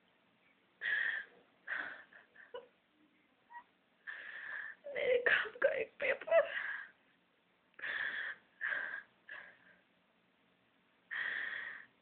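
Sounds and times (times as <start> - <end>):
woman sobbing: 5.2 - 7.0.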